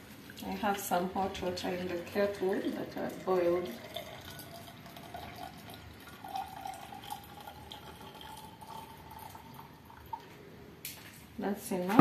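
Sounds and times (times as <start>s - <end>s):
hot water pouring into glass jar: 1.2s - 10.3s.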